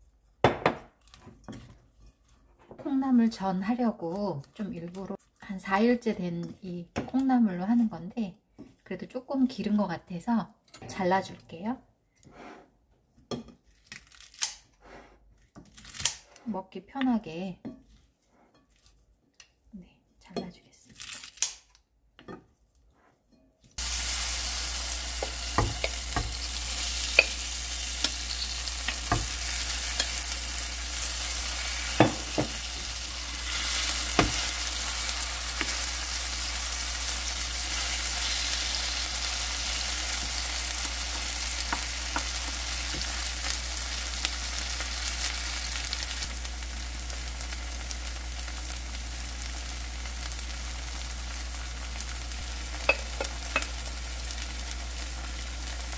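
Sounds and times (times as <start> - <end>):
batter sizzling in oil: 23.8 - 55.9.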